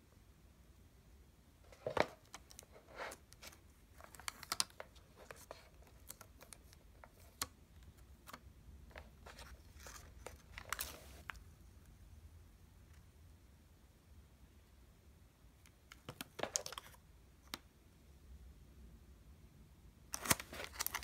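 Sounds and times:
plastic film being peeled off: 20.2s - 21.0s.

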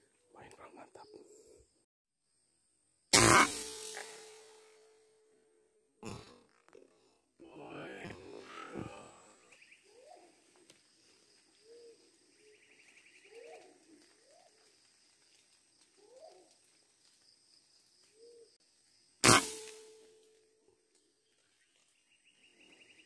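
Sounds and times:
rifle shot: 3.2s - 4.8s, 19.2s - 20.0s.

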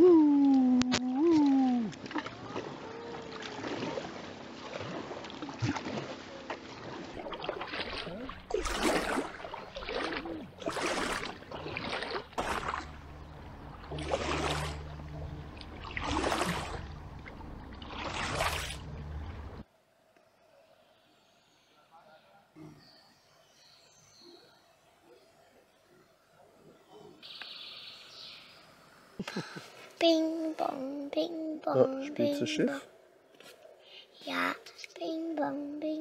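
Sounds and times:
low steady hum: 0.0s - 20.0s
kayak paddle splashing: 1.1s - 19.6s.

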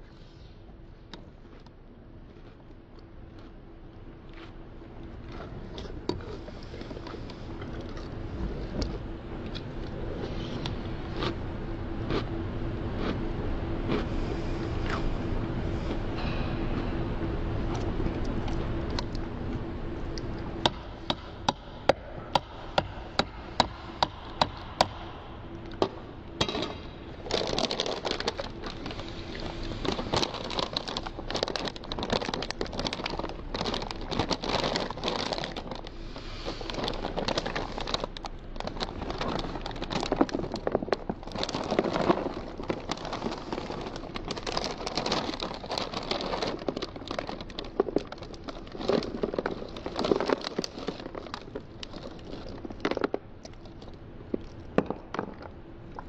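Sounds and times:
plastic bag crinkling: 25.8s - 56.0s
dry cereal pouring: 27.2s - 52.8s.

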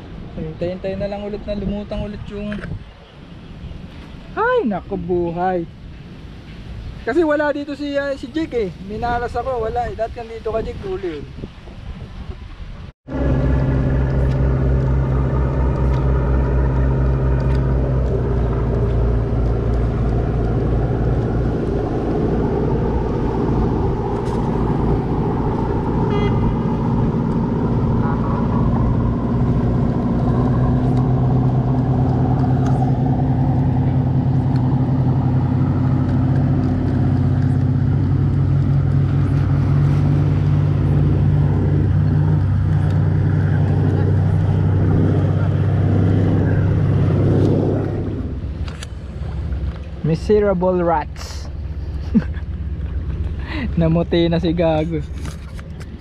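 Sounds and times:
ferry engine droning: 13.1s - 56.0s.

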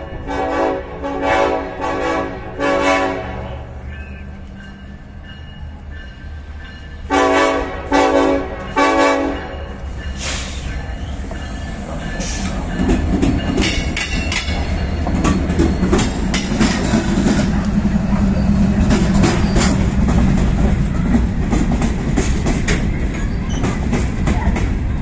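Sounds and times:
locomotive engines rumbling: 0.0s - 25.0s
locomotive air horn blasts: 0.1s - 3.7s, 7.1s - 9.6s
train wheels clattering on rails: 3.8s - 25.0s.

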